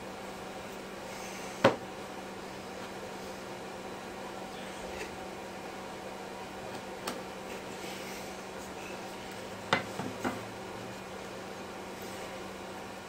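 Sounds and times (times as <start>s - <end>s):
steady hum and hiss: 0.0s - 13.0s.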